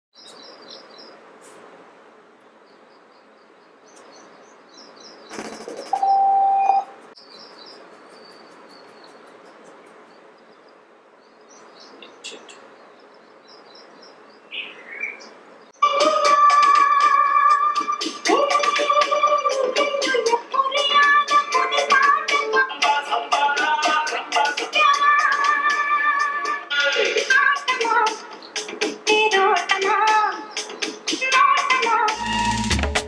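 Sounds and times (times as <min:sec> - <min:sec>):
small birds chirping: 0:00.1 - 0:01.5, 0:02.3 - 0:15.8, 0:30.2 - 0:31.1
background hiss: 0:00.2 - 0:32.9
electronic beep: 0:05.7 - 0:07.0
music from small speaker: 0:15.8 - 0:33.0.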